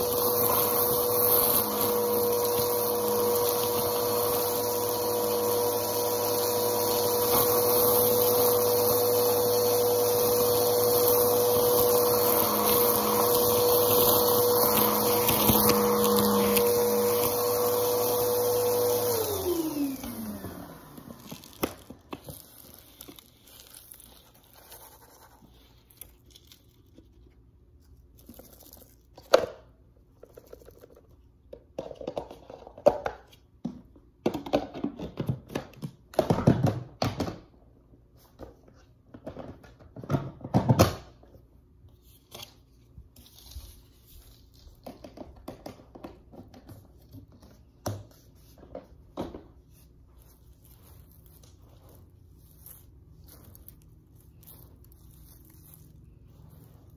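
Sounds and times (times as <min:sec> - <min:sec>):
vacuum cleaner motor winding down: 0:00.0 - 0:22.8
crinkly rustling and tearing: 0:19.2 - 0:29.2, 0:42.0 - 0:44.9, 0:49.7 - 0:56.9.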